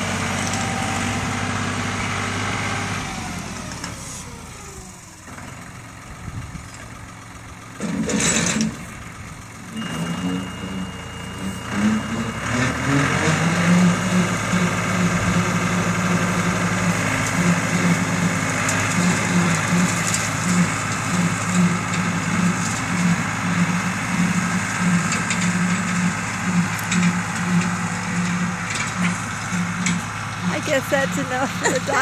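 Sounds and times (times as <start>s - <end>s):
rotary cutter mowing grass: 0.0s - 5.1s, 7.8s - 32.0s
tractor diesel engine running: 0.0s - 32.0s.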